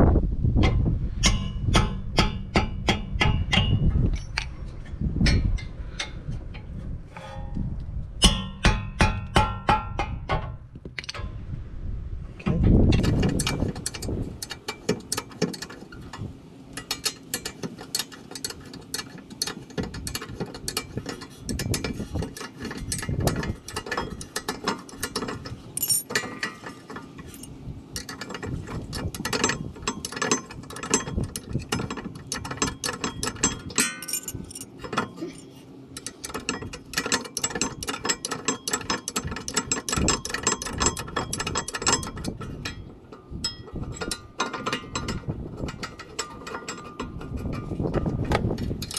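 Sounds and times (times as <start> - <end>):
ratcheting wrench clicking: 12.9 - 16.2, 16.8 - 34.7, 36.0 - 42.8, 43.5 - 48.9.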